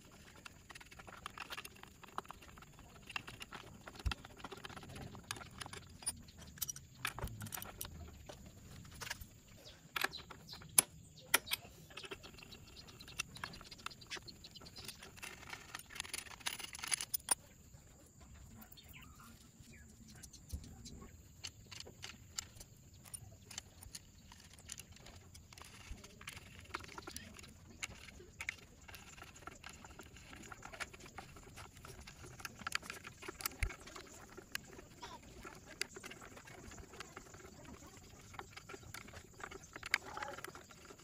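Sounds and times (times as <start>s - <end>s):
metal tools clicking and clinking: 0.1s - 9.2s, 9.8s - 17.5s.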